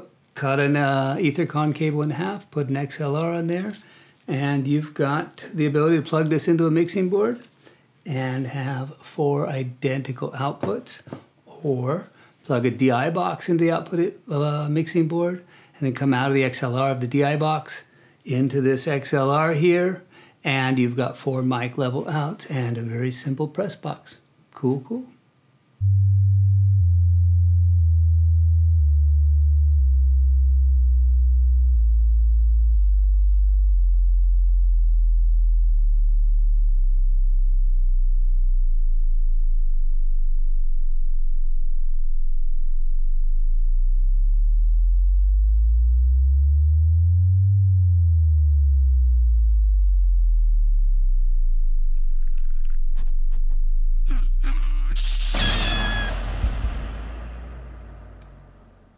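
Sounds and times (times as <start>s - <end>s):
deep electronic gliding tones: 25.8s - 58.9s
short noisy high sound: 54.1s - 58.9s.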